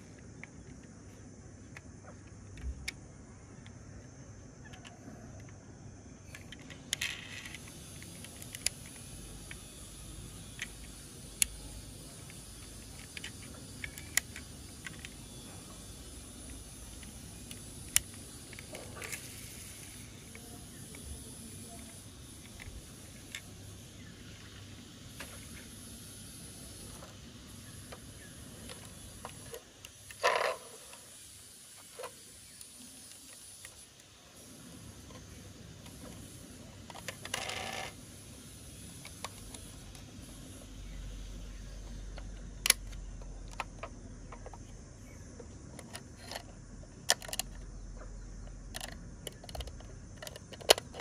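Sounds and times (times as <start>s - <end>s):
toy car clicks: 6.3s - 24.6s, 27.8s - 34.2s, 35.0s - 40.1s, 41.9s - 44.7s, 45.6s - 47.7s, 48.4s - 51.0s
toy car scrape: 6.4s - 11.4s, 16.8s - 23.5s, 28.0s - 31.2s, 35.9s - 38.0s, 45.8s - 46.5s.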